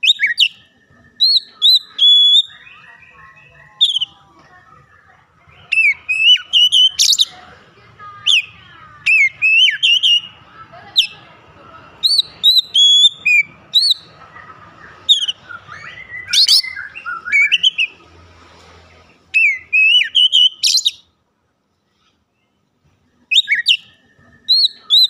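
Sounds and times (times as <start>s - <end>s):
bird singing whistled notes: 0.0s - 4.2s, 5.6s - 7.4s, 8.3s - 10.4s, 12.0s - 14.1s, 14.8s - 18.0s, 19.3s - 21.1s, 23.2s - 25.0s.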